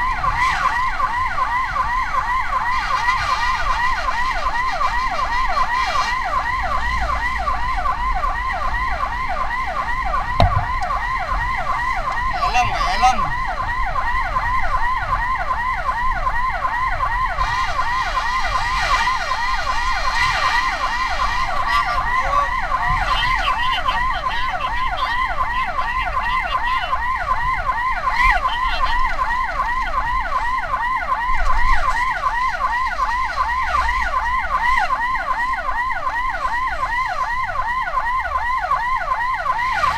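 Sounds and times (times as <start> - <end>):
siren yelping: 0.0 - 39.9
short knock: 10.4 - 10.8.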